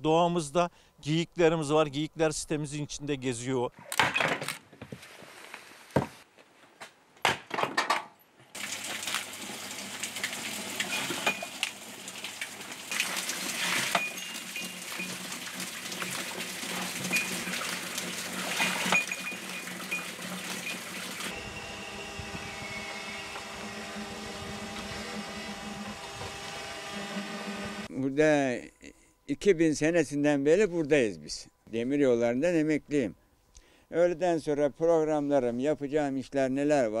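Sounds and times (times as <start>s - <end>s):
small motor humming: 19.4s - 27.9s.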